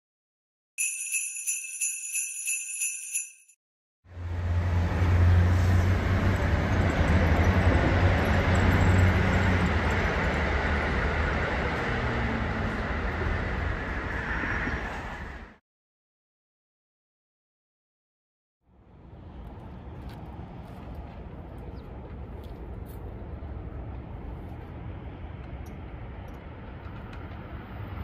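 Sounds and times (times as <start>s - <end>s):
bell-like chime jingle: 0.8s - 3.6s
diesel train passing on viaduct: 4.1s - 15.6s, 18.7s - 28.0s.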